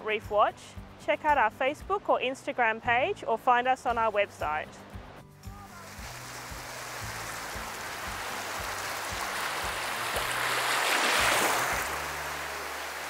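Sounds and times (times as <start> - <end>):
sea waves washing in: 5.7 - 13.0.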